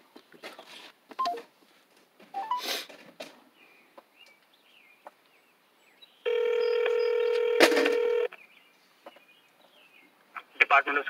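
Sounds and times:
telephone ringback tone: 2.4 - 2.6, 6.3 - 8.3.

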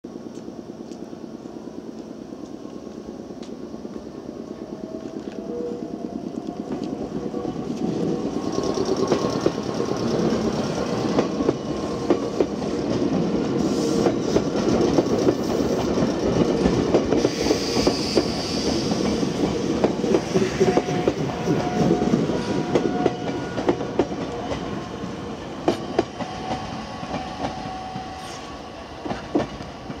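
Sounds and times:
steady alarm-like train tone: 2.8 - 30.0
train wheels clacking over rail joints: 7.8 - 24.8.

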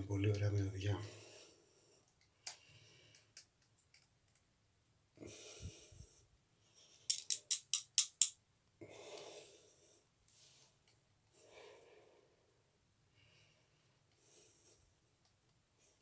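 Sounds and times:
breaths through the nose: 5.2 - 6.2.

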